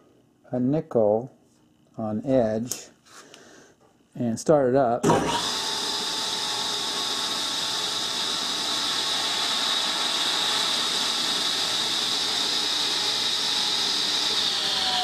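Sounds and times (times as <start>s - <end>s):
table saw running: 5.0s - 15.0s.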